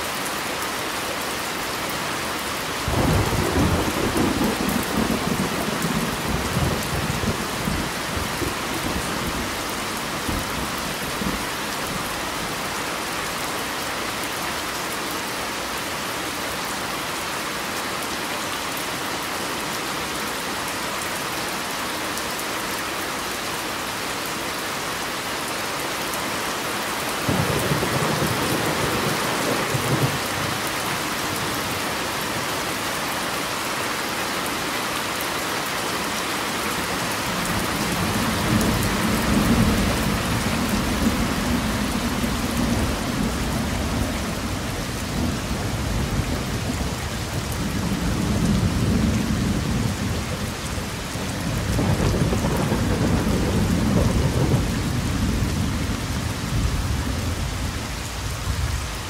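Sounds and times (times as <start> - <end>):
rain on a car roof: 0.0 - 59.0
thunder rumble: 38.0 - 57.8.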